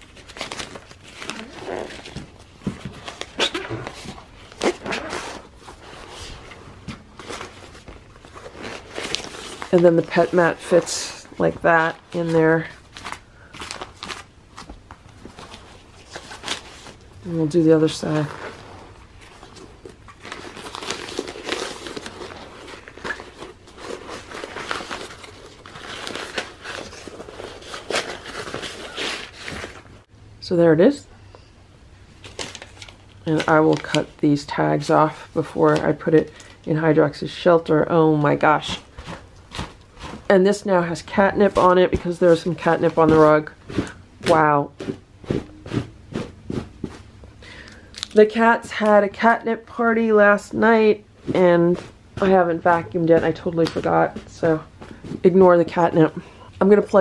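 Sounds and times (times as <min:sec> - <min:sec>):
fabric and vinyl rustling: 0:00.0 - 0:30.1, 0:32.1 - 0:47.4, 0:48.0 - 0:57.0.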